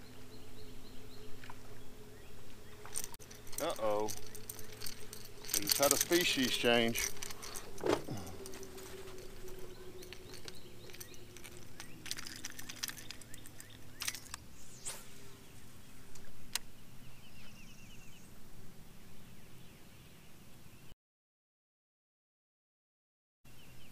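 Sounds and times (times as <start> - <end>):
bird chirping: 0.0 - 18.4
steady low hum: 0.0 - 20.6.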